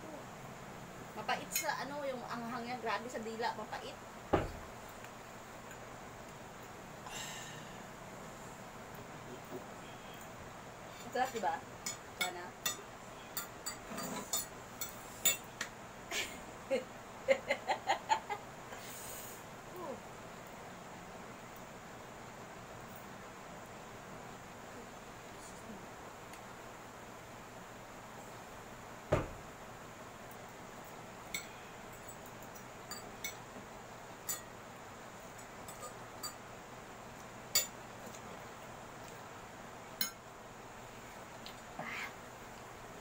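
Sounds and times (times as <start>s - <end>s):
laughter: 16.1s - 18.4s
loud thump: 29.1s - 29.4s
forks clinking on plates: 35.6s - 36.4s.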